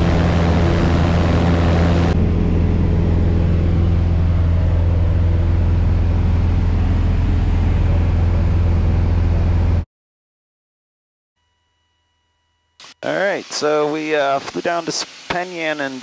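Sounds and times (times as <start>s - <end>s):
airplane engine droning in cabin: 0.0s - 9.8s.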